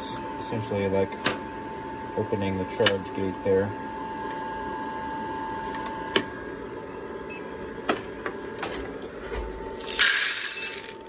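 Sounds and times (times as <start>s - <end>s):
coffee beans poured into tray: 9.8s - 11.0s.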